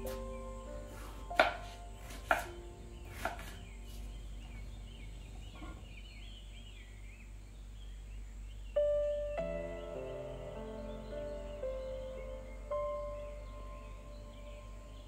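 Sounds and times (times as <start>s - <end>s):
soft background music: 0.0s - 6.8s, 8.7s - 15.0s
knife chopping on wooden board: 1.4s - 2.5s, 3.1s - 3.6s.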